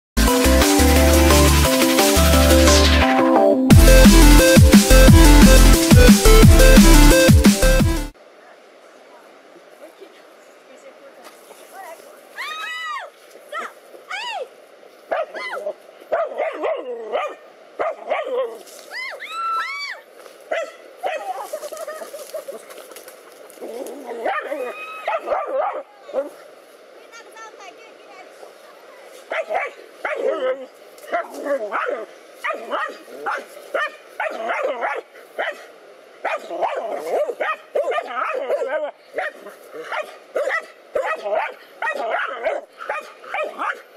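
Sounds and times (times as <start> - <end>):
dogs barking and yelping: 15.1 - 18.6, 23.5 - 26.4, 29.3 - 35.6, 36.2 - 43.9.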